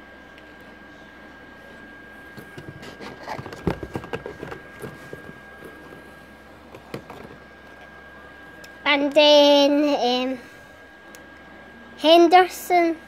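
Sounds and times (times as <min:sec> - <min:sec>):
plastic packs clicking and crinkling: 0:02.4 - 0:06.0.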